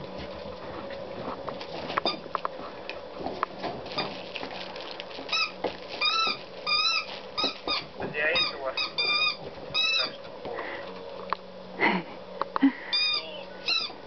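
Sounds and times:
puppies yipping and squealing: 5.3s - 10.3s, 12.8s - 14.0s.

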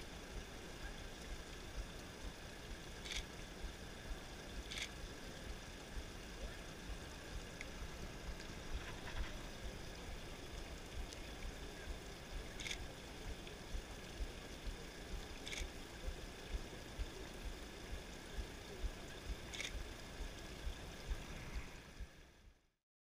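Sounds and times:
faint clicks: 3.0s - 3.5s, 4.1s - 5.1s, 10.5s - 11.6s, 12.2s - 17.6s, 18.8s - 22.1s
wind rumble on microphone: 16.0s - 22.2s.

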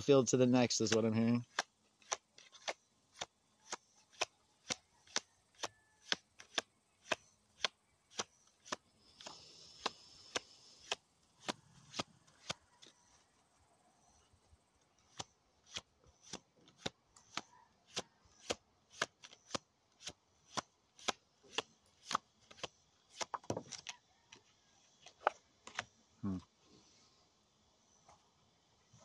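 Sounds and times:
cards being shuffled: 15.1s - 24.0s.

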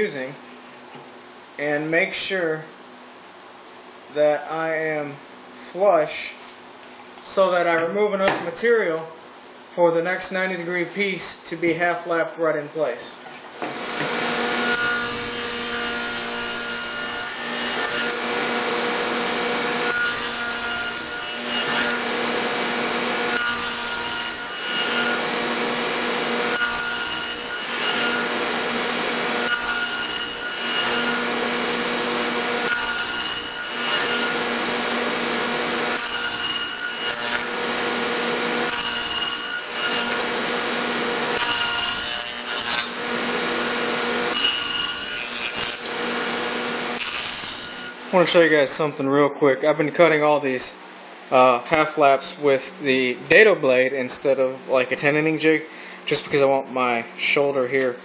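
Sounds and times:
table saw whining: 13.6s - 48.8s
saw blade cutting wood: 13.7s - 48.6s.

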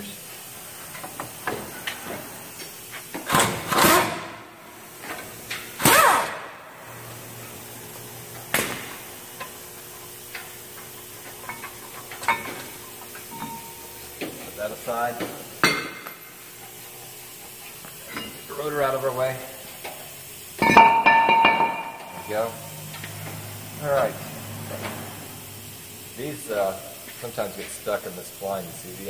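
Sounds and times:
powered wrench spinning: 5.0s - 6.5s.

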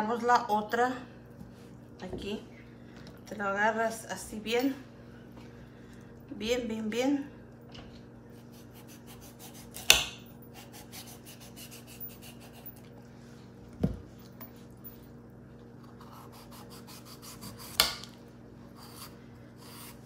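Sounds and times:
knife scraping pumpkin rind: 8.4s - 12.9s, 15.8s - 17.9s, 18.7s - 20.0s.

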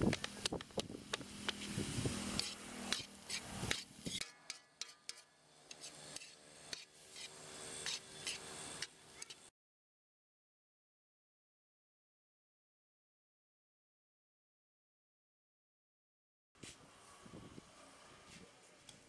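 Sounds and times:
steel spatula scraping a pan: 2.2s - 9.5s.

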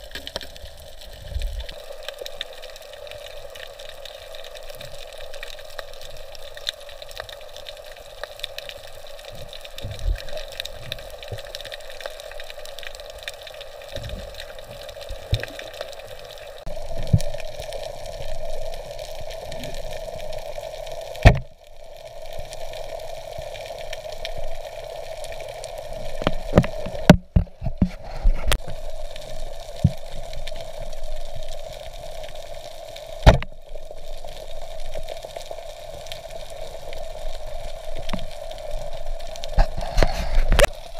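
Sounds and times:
crackles and clicks: 0.0s - 40.9s
underwater watery hiss: 27.8s - 40.9s.

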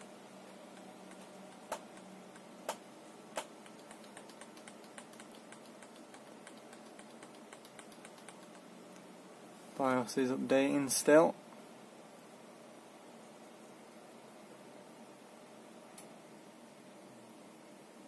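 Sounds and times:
sharp clicks: 3.4s - 8.7s
faint ticking: 3.4s - 9.1s.

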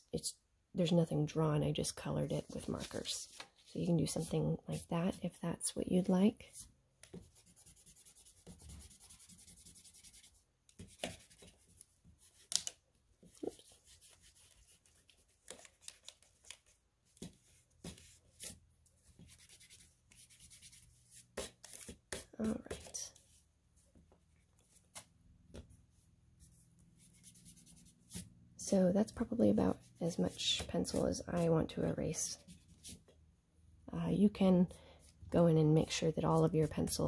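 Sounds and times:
eraser rubbing on paper: 7.2s - 11.8s.

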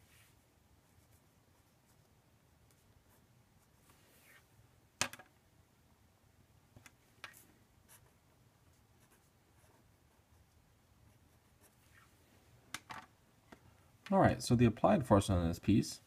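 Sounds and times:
marker scratching on paper: 7.3s - 12.1s.

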